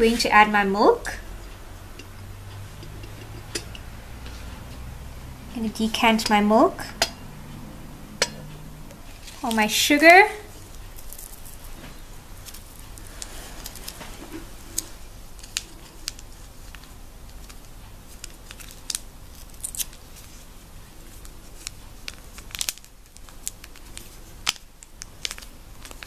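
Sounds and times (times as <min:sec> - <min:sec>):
paper sachet crinkling: 0:21.0 - 0:26.0.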